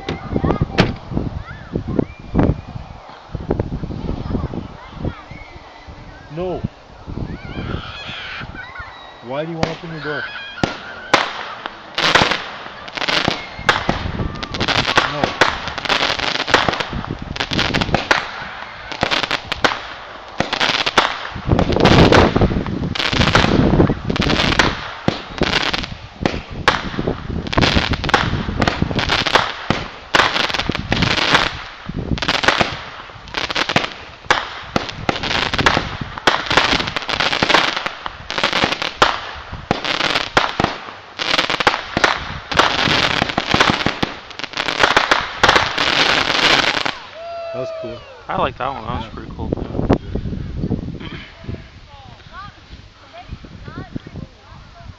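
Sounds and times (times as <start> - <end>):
fireworks bangs and pops: 0.0 - 1.2, 9.6 - 10.0, 10.6 - 47.1.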